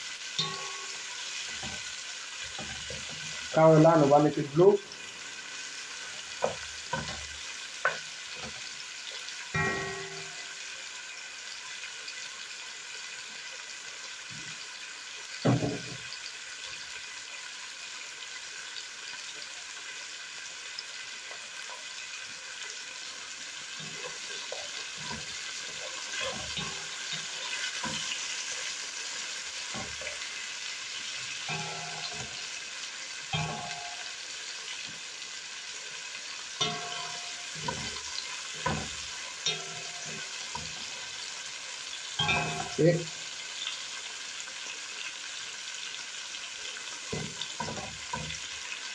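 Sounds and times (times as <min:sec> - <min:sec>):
vegetables sizzling in hot oil: 0:00.0 - 0:48.9
spatula knocking against pan: 0:06.3 - 0:08.6, 0:09.6 - 0:10.5, 0:29.7 - 0:30.3, 0:31.5 - 0:32.4, 0:33.4 - 0:34.1, 0:36.6 - 0:40.9, 0:42.2 - 0:43.1, 0:47.1 - 0:48.6.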